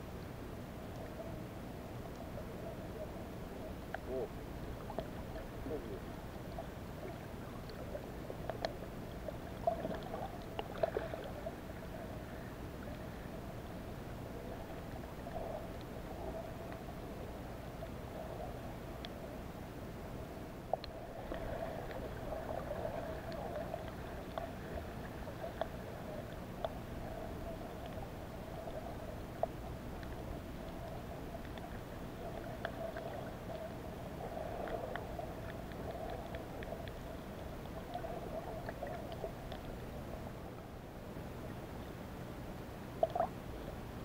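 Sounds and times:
muffled underwater hum: 0.0s - 44.0s
faint clicks: 0.9s - 1.2s, 2.0s - 2.4s, 3.6s - 4.2s, 4.8s - 11.6s, 14.6s - 17.1s, 18.6s - 19.2s, 20.7s - 39.9s, 43.0s - 43.4s.

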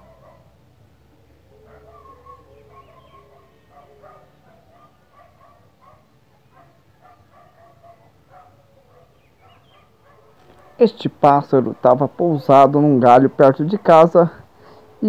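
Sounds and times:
faint animal calls: 1.5s - 10.6s.

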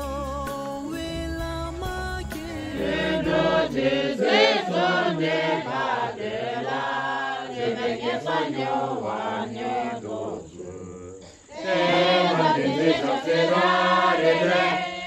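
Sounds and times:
low bass music: 0.0s - 3.9s
group chanting a prayer: 2.7s - 15.0s.

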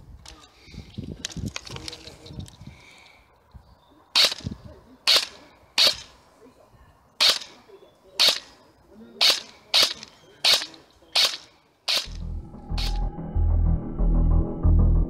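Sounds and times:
airsoft gun shots: 4.2s - 4.5s, 5.1s - 6.2s, 7.2s - 7.6s, 8.2s - 8.6s, 9.2s - 12.2s, 12.8s - 13.0s.

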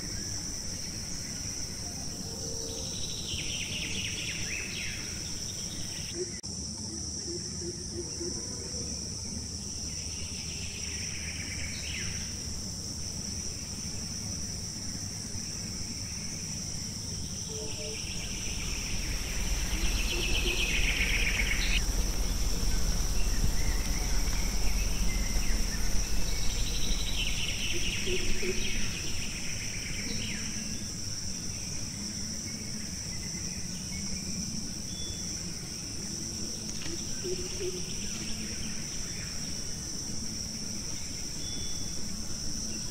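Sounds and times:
insect chorus drone: 0.0s - 42.9s
insect chirping bursts: 9.2s - 42.9s
low rumble: 17.3s - 29.8s.

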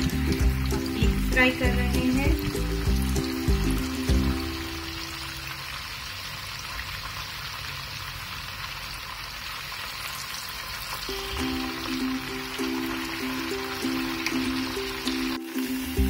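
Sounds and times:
background music: 0.0s - 5.4s, 11.1s - 16.0s
food sizzling in hot oil: 0.0s - 16.0s.

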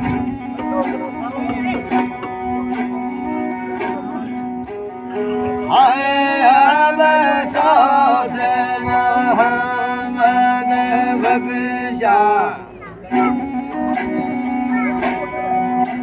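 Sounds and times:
bowed fiddle drone: 0.0s - 16.0s
man singing ornamented: 5.2s - 16.0s.

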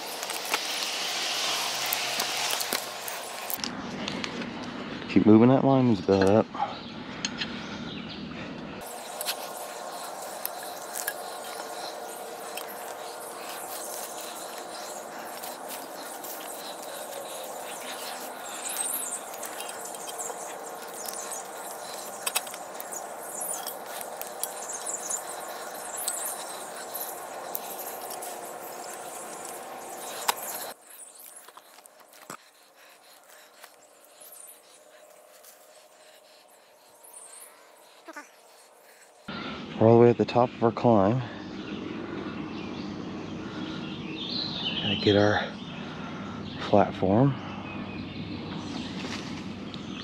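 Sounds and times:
steady hiss: 0.0s - 3.6s, 8.8s - 39.3s.

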